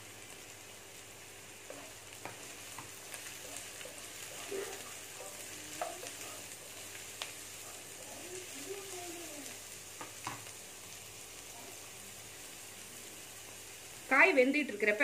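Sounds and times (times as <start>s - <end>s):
vegetables sizzling in hot oil: 0.0s - 15.0s
spatula scraping and tapping pan: 1.7s - 3.9s, 10.0s - 10.5s.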